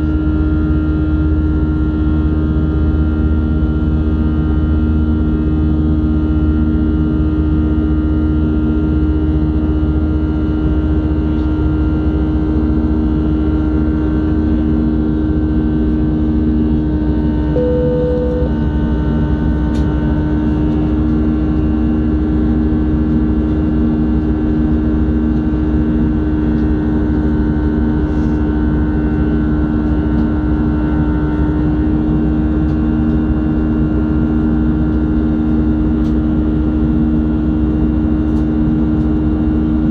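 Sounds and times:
jet engine cabin drone: 17.3 - 18.7
brief tone: 17.6 - 18.6.

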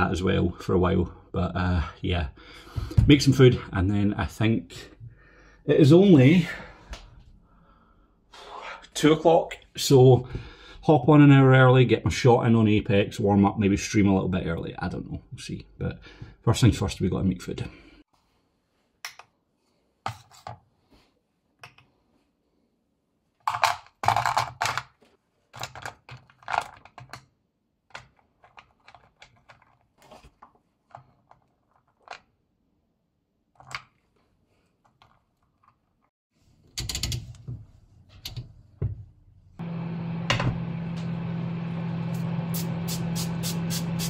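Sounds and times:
appliance hum: 37.9 - 44.0.

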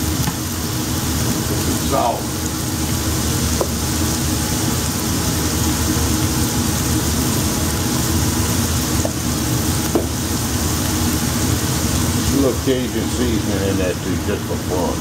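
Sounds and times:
onion sizzling in skillet: 0.0 - 15.0.

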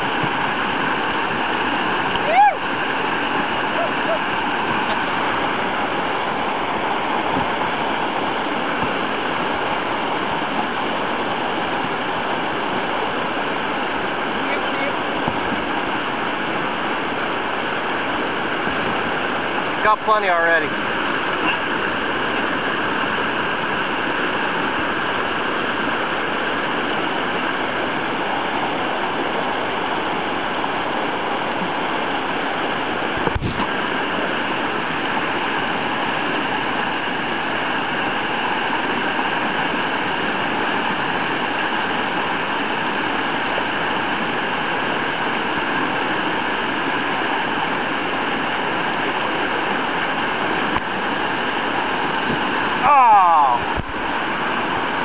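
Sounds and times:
river water rushing: 0.0 - 55.0.

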